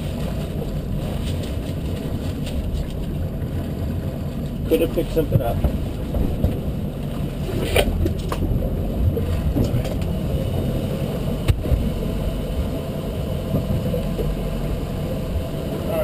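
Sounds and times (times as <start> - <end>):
boat engine idling: 0.0 - 16.0
engine knocks: 5.2 - 6.8.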